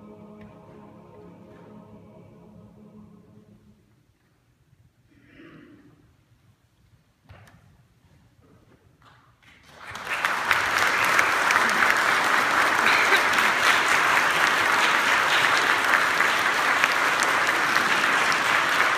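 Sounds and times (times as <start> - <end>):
audience applauding: 9.5 - 18.9.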